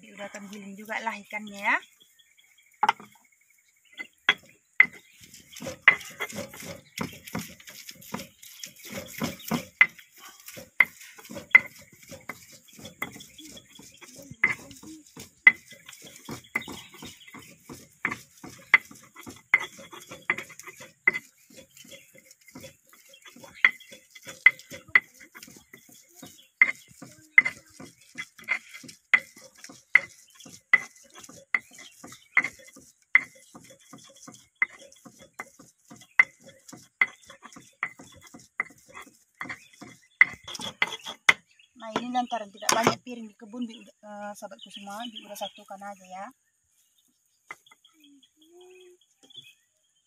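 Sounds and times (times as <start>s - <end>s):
stone pestle knocking on mortar: 4.3s - 41.4s.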